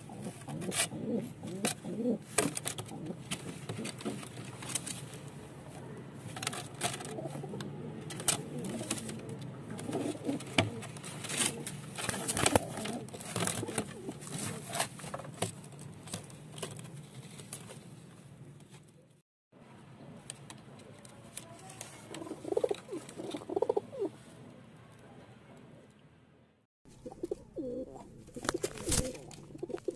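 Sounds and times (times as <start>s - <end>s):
pigeon cooing: 0.0s - 4.4s, 7.0s - 14.7s, 22.2s - 24.2s, 26.9s - 29.9s
sharp clicks and scratches: 6.3s - 17.7s.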